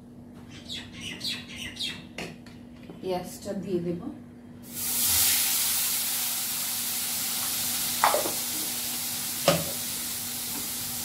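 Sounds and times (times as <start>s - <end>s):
onion sizzling in hot oil: 4.7s - 11.0s.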